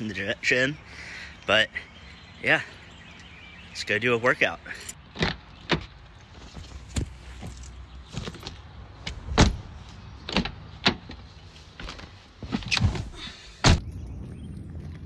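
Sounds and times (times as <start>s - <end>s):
car doors opening and shutting: 8.3s - 9.7s, 12.6s - 13.8s.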